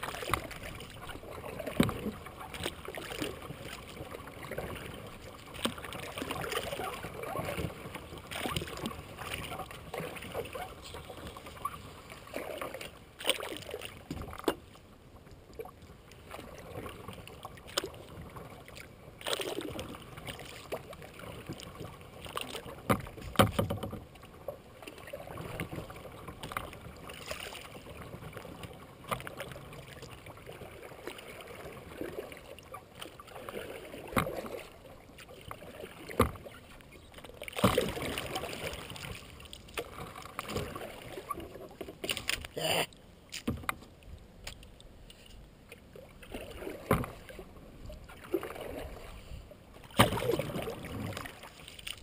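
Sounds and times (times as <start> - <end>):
kayak paddle splashing in water: 0.0 - 14.7, 15.6 - 42.7, 45.7 - 52.0
paddle knocking: 22.8 - 24.2, 35.5 - 42.6, 43.3 - 43.9.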